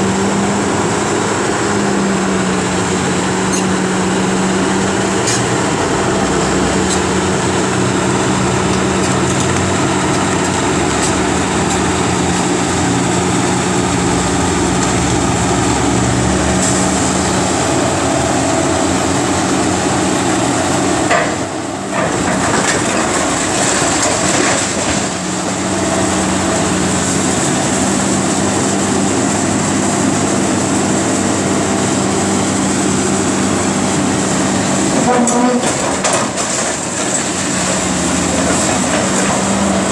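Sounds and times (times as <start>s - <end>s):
excavator diesel engine running: 0.0s - 39.9s
breaking masonry crunching: 22.0s - 25.2s, 35.0s - 39.9s.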